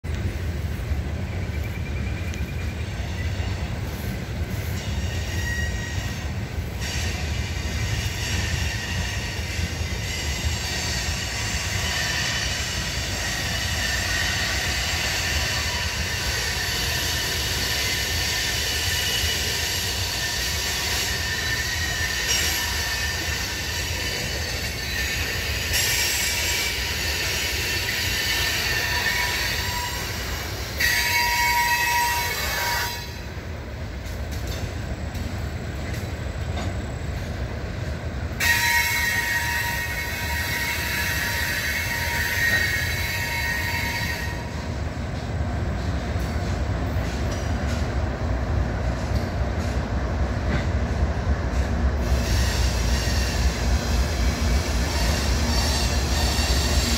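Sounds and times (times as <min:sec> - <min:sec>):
train wheels rumbling on rail: 0:00.0 - 0:56.9
high wheel squeal: 0:01.2 - 0:33.4, 0:38.4 - 0:44.8, 0:52.0 - 0:56.9.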